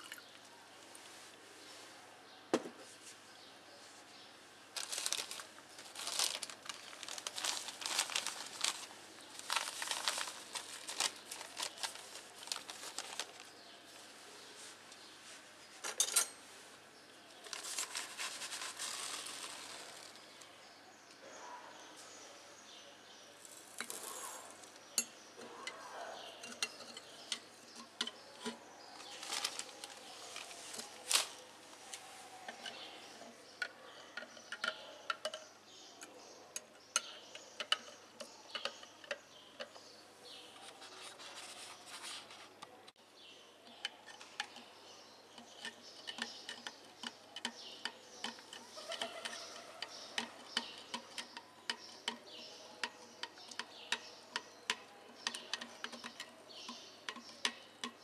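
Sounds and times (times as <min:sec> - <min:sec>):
cutlery clinking against glass jar: 0:15.9 - 0:16.4, 0:25.0 - 0:28.6.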